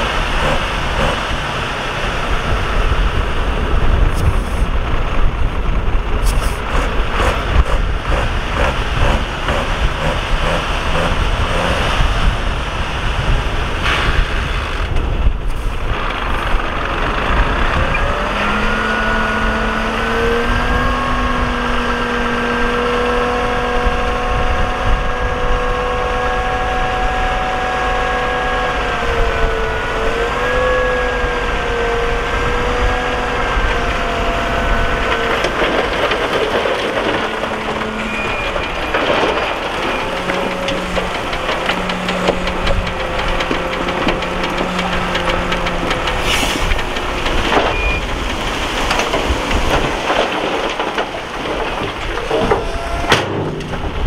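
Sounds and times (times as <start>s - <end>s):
knocks and rattles: 0.0s - 1.4s, 6.2s - 12.2s, 33.7s - 54.0s
diesel engine rumble: 0.0s - 54.0s.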